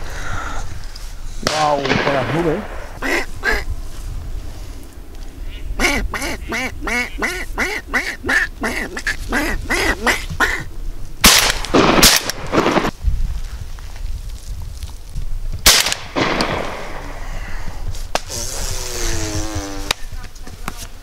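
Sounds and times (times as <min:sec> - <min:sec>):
shotgun shots: 0:01.4 - 0:03.0, 0:11.2 - 0:12.9, 0:15.6 - 0:17.2
duck quacking: 0:03.0 - 0:03.7, 0:05.5 - 0:10.7.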